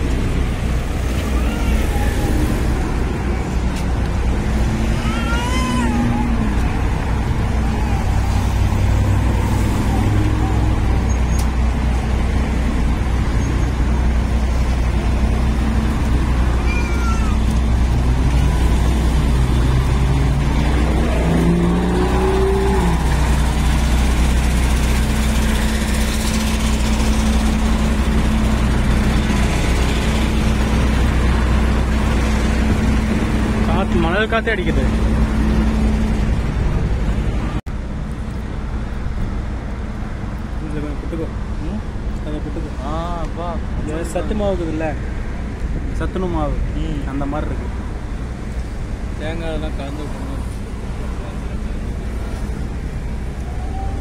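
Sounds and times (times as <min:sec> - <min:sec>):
road traffic passing: 0:00.0 - 0:54.0
vehicle engine revving away: 0:17.7 - 0:36.8.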